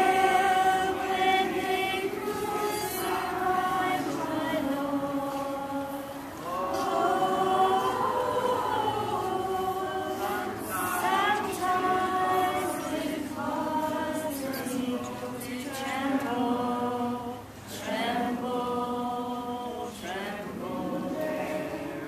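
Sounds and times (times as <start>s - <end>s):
group singing a hymn: 0.0s - 22.0s.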